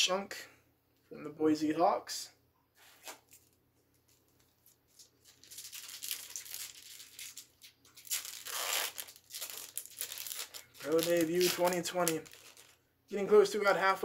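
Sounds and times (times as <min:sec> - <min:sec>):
foil wrapper crinkling: 0:03.0 - 0:12.8
foil wrapper ripping open: 0:04.9 - 0:12.8.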